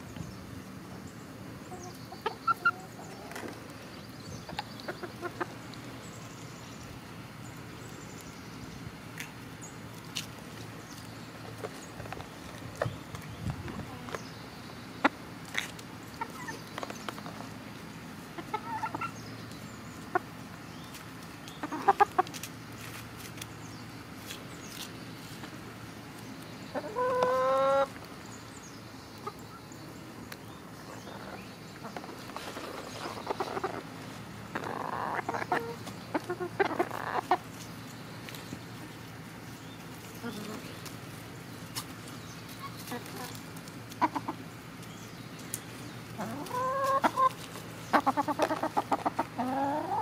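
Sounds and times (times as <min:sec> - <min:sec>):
chickens clucking softly: 0:01.6 - 0:05.9, 0:10.9 - 0:17.6, 0:18.2 - 0:22.5, 0:26.6 - 0:28.1, 0:29.2 - 0:41.0, 0:41.7 - 0:50.0
chicken drawn-out call: 0:46.2 - 0:50.0.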